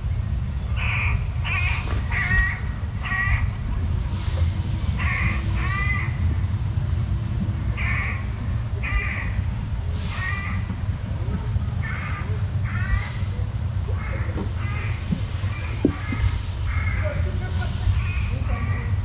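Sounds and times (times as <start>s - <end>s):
steady low rumble: 0.0s - 19.0s
crow cawing: 0.8s - 3.6s, 5.0s - 6.2s, 7.8s - 10.7s, 11.8s - 13.3s, 13.9s - 17.2s.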